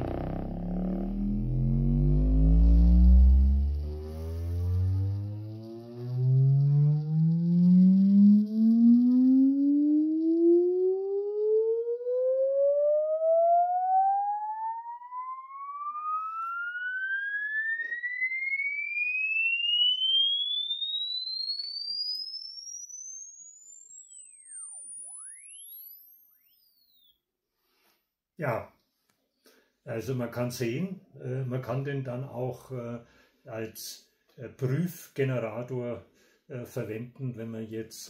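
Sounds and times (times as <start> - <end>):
rising sweep tone from loudspeaker: 0.0 - 21.7, 22.6 - 26.7.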